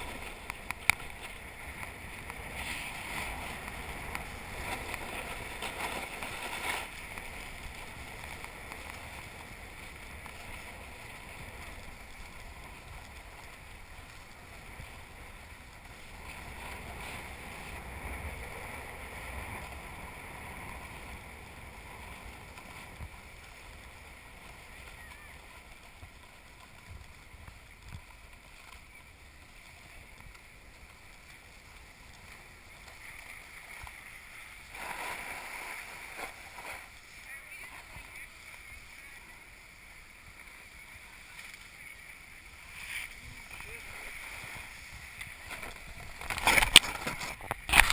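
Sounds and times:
skis sliding on snow: 0.0 - 47.9
wind on microphone: 0.0 - 47.9.

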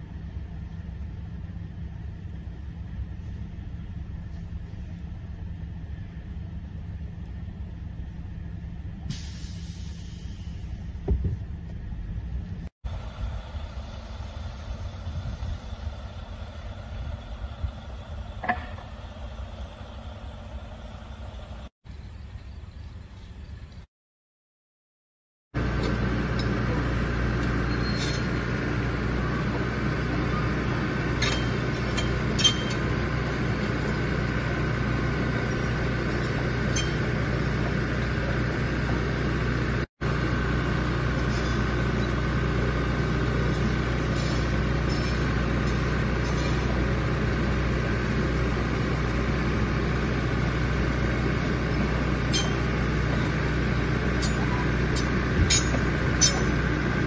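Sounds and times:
bulldozer diesel engine running: 0.0 - 23.7, 25.6 - 57.0.

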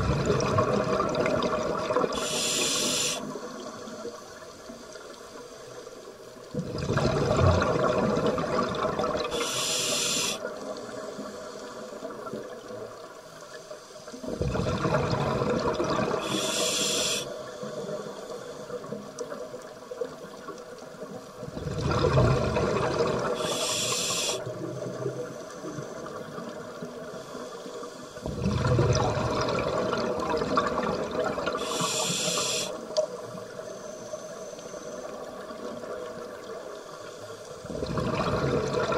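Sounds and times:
scuba regulator breathing underwater: 2.0 - 4.0, 9.2 - 11.9, 16.1 - 18.7, 23.0 - 24.6, 31.5 - 32.9.

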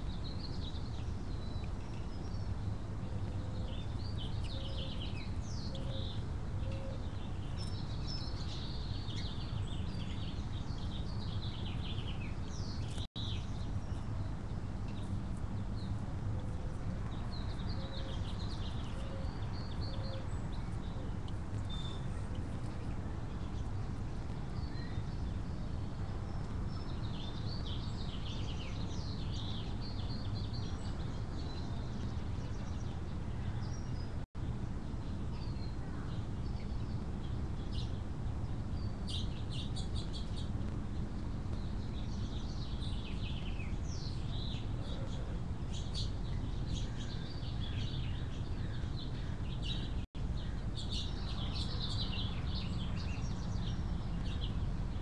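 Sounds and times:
birds chirping and singing: 0.0 - 25.7, 41.5 - 54.6.

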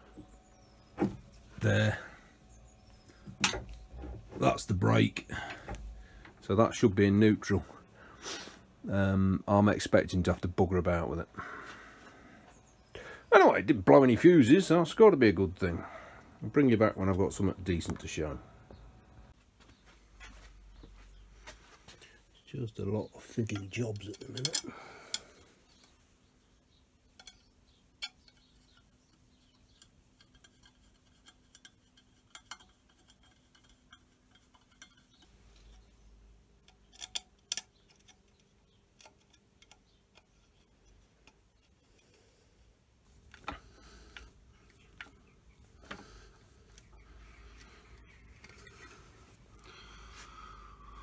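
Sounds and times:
metallic clicks of small pins: 23.5 - 26.0, 27.1 - 36.0, 36.6 - 42.2.

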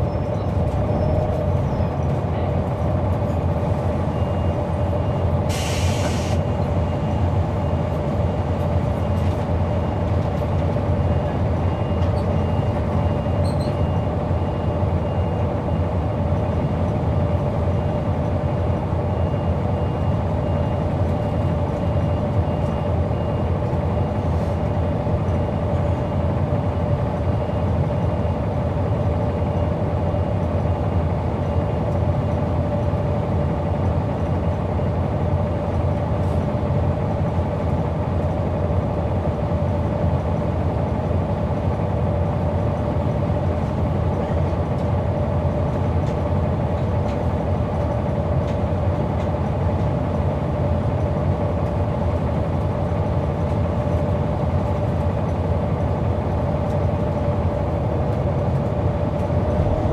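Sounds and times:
bus diesel engine drone: 0.0 - 59.9
air hiss: 5.5 - 6.4.

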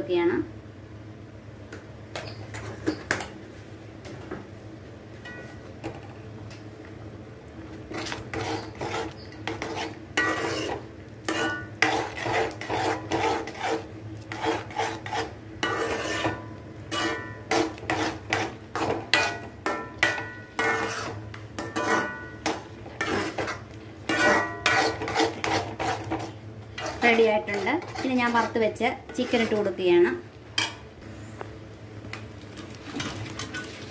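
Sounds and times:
spoon scraping metal pan: 7.9 - 29.7.

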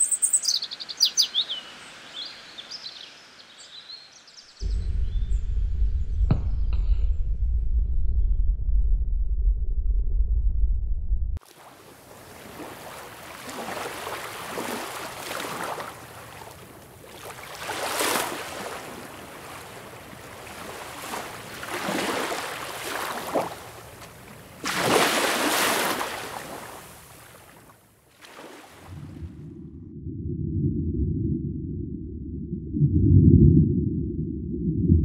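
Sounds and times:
water sloshing and rushing: 11.4 - 35.0.

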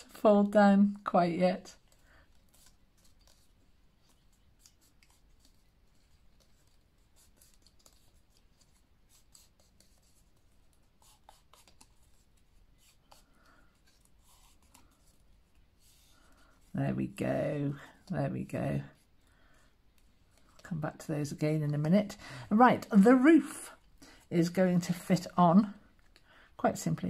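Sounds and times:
clicks and rustles of thin card: 1.8 - 16.7, 18.9 - 21.8.

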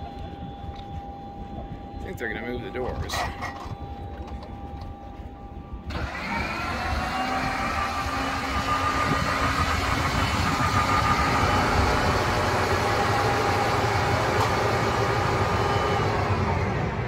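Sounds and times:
electric motor whining: 5.9 - 16.6.

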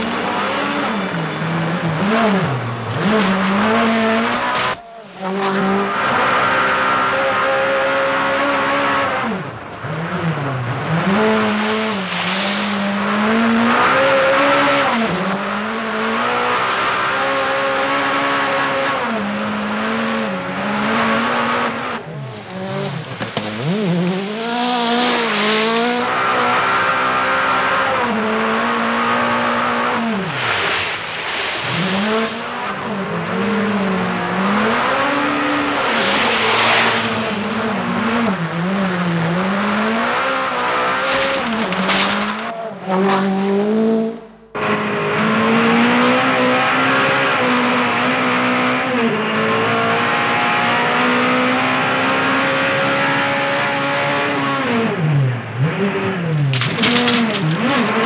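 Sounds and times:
rally car engine at full throttle: 0.0 - 58.0
tyres sliding on gravel: 22.0 - 25.9, 35.6 - 37.6, 41.0 - 43.7.

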